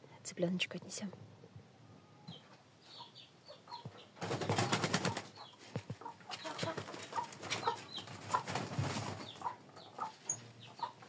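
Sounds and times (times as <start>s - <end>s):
chick peeping: 2.0s - 11.0s
hens clucking: 2.2s - 11.0s
wings flapping: 4.2s - 9.5s.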